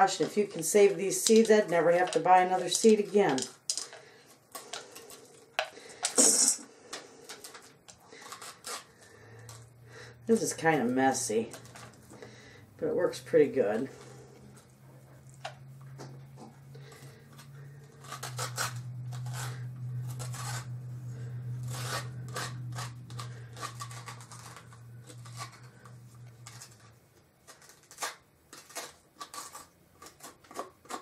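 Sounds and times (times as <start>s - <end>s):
spoon scraping squash: 0.0s - 31.0s
steady low hum: 3.8s - 27.4s.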